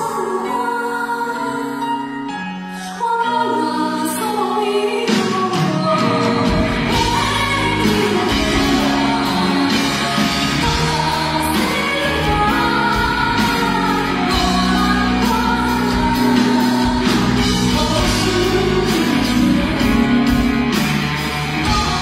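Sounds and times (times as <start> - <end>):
pop band playing: 0.0 - 22.0
drums: 3.9 - 22.0
bass guitar: 6.0 - 22.0.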